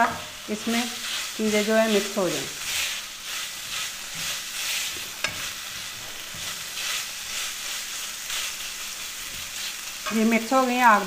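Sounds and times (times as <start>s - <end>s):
wooden spatula scraping pan: 0.0s - 7.8s
mince sizzling in a pan: 0.0s - 11.0s.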